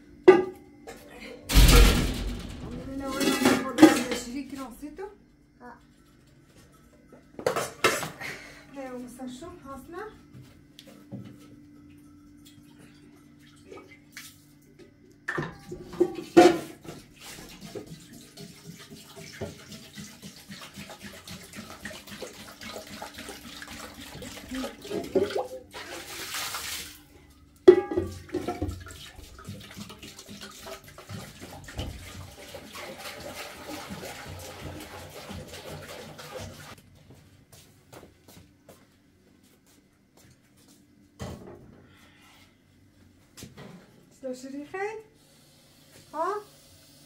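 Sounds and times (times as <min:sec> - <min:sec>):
water pouring into a metal pot: 0:17.0 - 0:27.1, 0:27.8 - 0:36.8.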